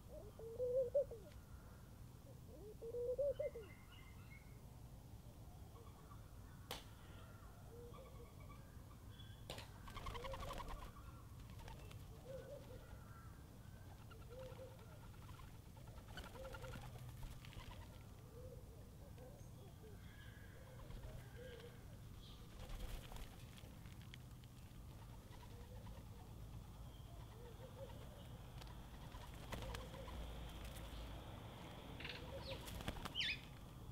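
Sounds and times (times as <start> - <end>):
doves cooing: 0.0 - 1.6, 2.4 - 3.6, 9.8 - 23.3, 24.9 - 30.9, 32.0 - 33.4
small birds chirping: 32.0 - 33.9.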